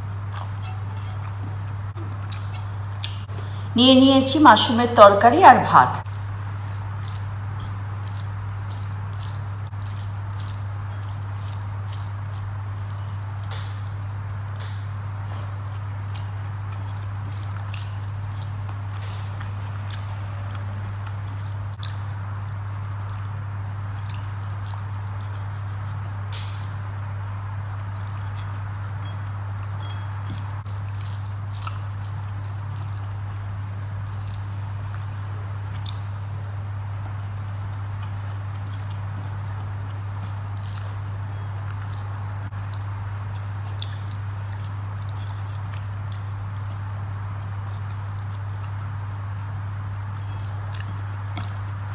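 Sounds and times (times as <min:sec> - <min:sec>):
chewing: 0:00.0 - 0:03.3, 0:06.0 - 0:51.9
fingers mixing food on plate: 0:00.0 - 0:03.3, 0:06.0 - 0:36.4
steady low hum: 0:00.0 - 0:51.9.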